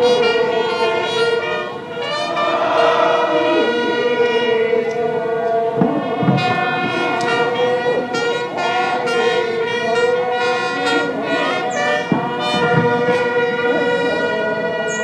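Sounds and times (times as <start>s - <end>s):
long held wind instrument note: 0.0s - 15.0s
steady drone: 0.0s - 15.0s
low drum thuds: 5.7s - 7.6s, 12.0s - 13.3s.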